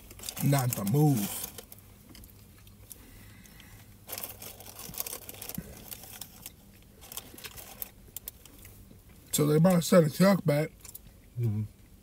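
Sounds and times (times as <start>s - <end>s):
food packaging crinkling: 0.0s - 2.8s, 4.0s - 8.7s.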